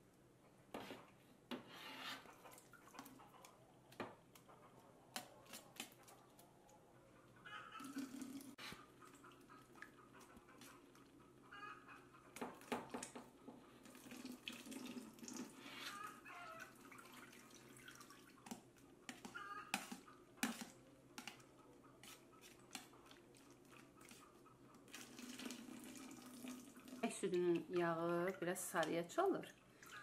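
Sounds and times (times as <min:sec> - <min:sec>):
buttermilk dripping and splashing: 0:13.8 - 0:28.9.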